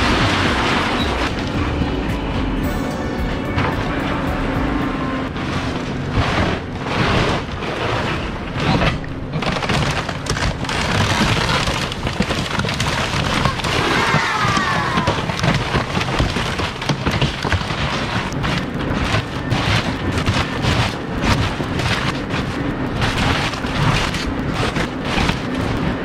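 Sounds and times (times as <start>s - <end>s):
excavator: 0.0s - 26.0s
timber crashing and splintering: 0.0s - 26.0s.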